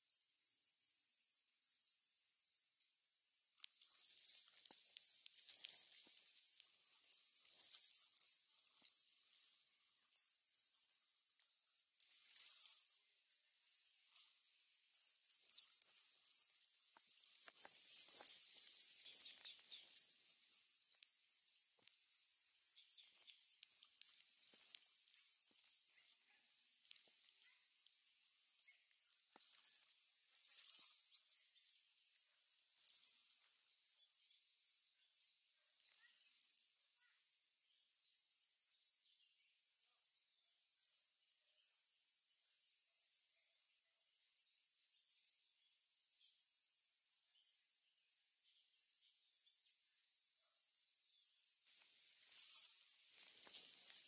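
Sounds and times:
faint high chirp: 0.0 - 42.2, 44.4 - 54.0
steady high hiss: 51.1 - 54.0.

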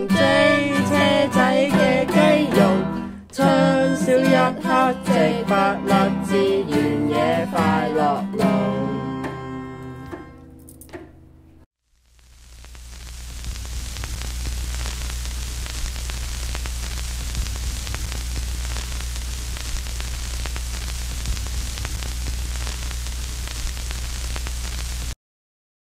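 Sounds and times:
crackles: 11.9 - 25.2
hissing static: 11.9 - 25.2
steady low hum: 12.0 - 25.1.

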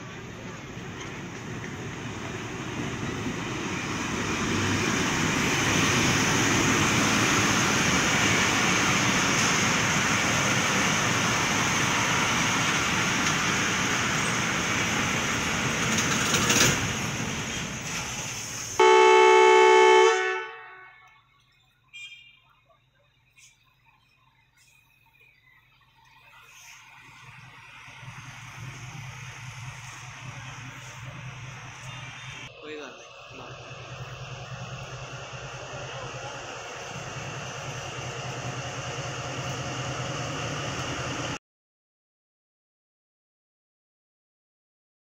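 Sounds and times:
passenger train rolling past: 0.0 - 20.9, 26.3 - 41.4
diesel locomotive horn blast: 18.8 - 21.2, 31.7 - 32.5.

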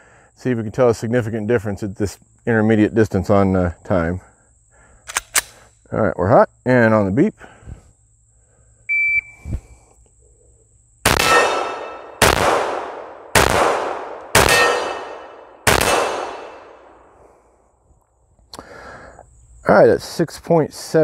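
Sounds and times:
pistol shots: 11.0 - 17.0
steel plate target ringing: 11.2 - 12.2, 14.4 - 16.8.

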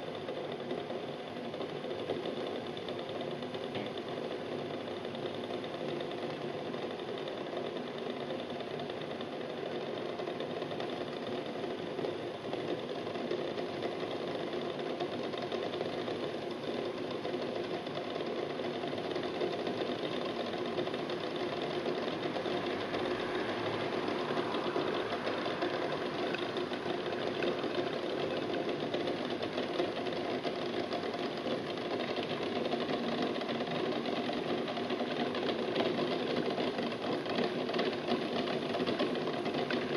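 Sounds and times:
water bubbling in pot: 20.7 - 31.7.

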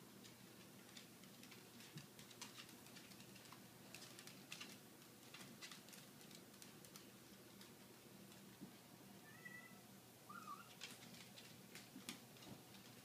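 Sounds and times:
claws clicking on hardwood floor: 0.2 - 8.8, 10.6 - 13.0.

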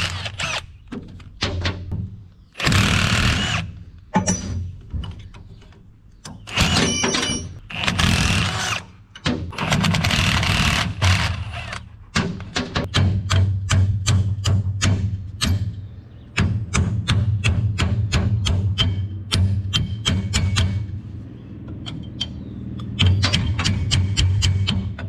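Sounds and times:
grinding or rattling bursts: 2.6 - 3.8, 9.5 - 11.8.

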